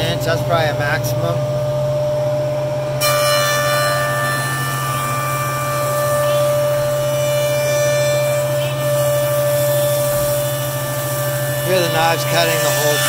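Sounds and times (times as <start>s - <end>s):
jointer motor humming: 0.0s - 13.0s
jointer knives cutting board: 3.0s - 13.0s.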